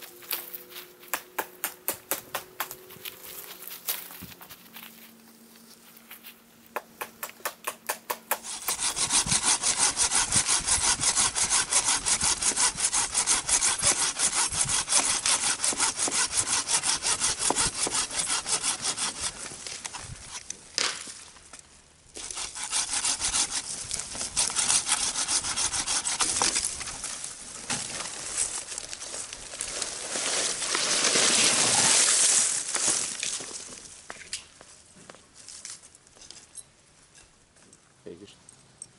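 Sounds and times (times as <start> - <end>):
hand saw cutting dry wood: 7.0 - 20.0, 22.2 - 27.0.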